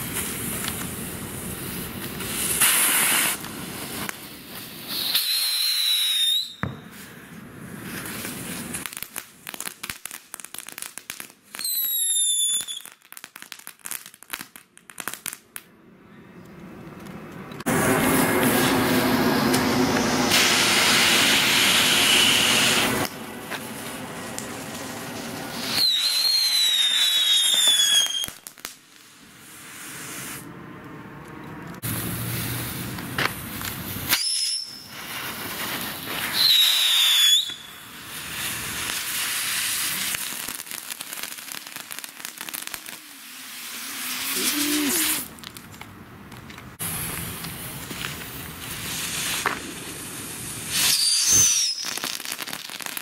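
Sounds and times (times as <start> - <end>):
wavering fireworks whistles: 0.0 - 10.9, 11.5 - 13.2, 17.7 - 30.5, 31.8 - 45.4, 46.8 - 53.0
fireworks hissing sparks: 0.0 - 15.4, 17.6 - 30.6, 31.8 - 45.8, 46.6 - 53.0
crackling: 16.4 - 53.0.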